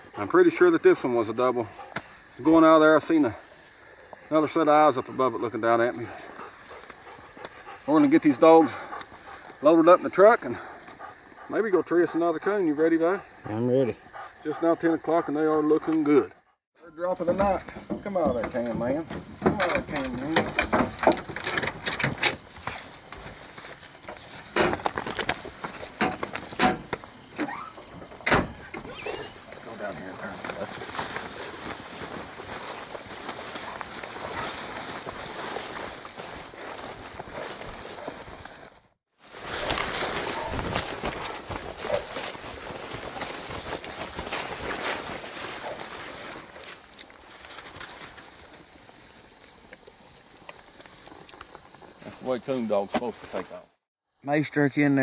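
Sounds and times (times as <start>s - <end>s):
footsteps: 5.7s - 11.5s, 15.8s - 53.7s
leash hardware clinking: 44.6s - 47.9s.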